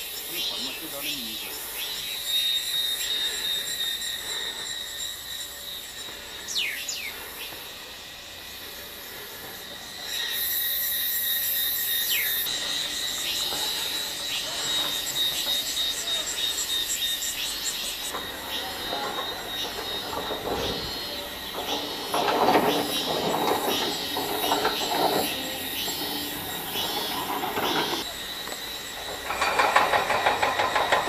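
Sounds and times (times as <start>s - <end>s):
falling whistle calls: 0.0s - 7.6s, 9.9s - 29.4s
insects buzzing: 0.0s - 31.0s.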